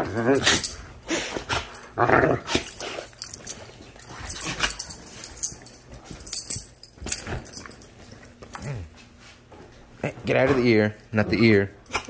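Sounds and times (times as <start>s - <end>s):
dogs play-growling: 0.0s - 9.0s
dogs scuffling: 2.5s - 10.8s.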